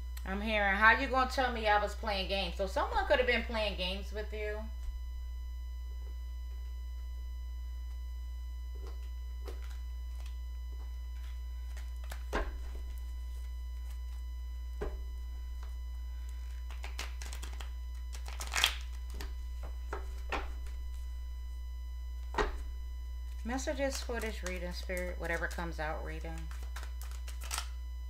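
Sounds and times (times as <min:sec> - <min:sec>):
steady low hum: 0:00.0 - 0:28.0
cards being shuffled: 0:16.6 - 0:19.3, 0:23.9 - 0:25.6, 0:26.2 - 0:27.8.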